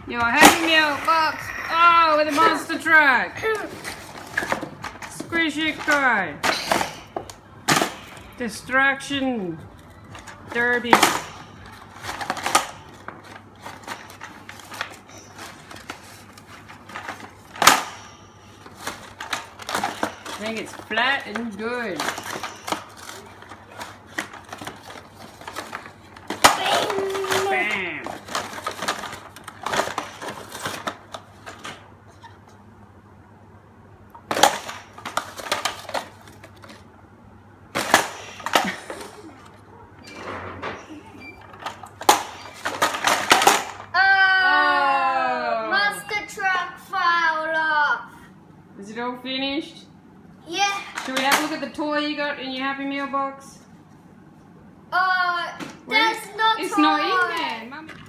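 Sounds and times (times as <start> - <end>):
plastic toy clattering: 18.6 - 31.8, 34.3 - 36.9, 41.5 - 43.9, 50.9 - 51.8.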